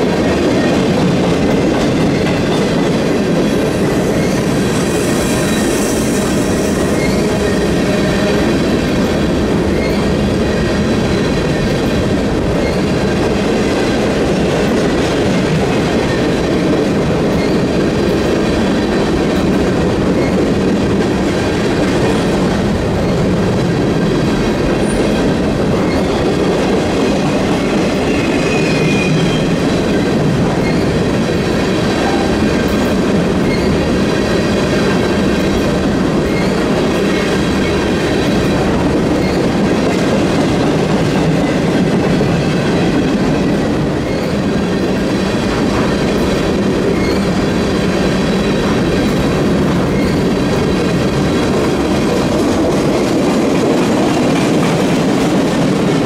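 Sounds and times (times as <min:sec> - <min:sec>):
freight train wheels rattling on rail: 0:00.0 - 0:56.0
high wheel squeal: 0:04.1 - 0:08.2, 0:28.0 - 0:29.6, 0:30.6 - 0:31.0, 0:33.4 - 0:33.8, 0:46.9 - 0:47.4, 0:49.9 - 0:50.2.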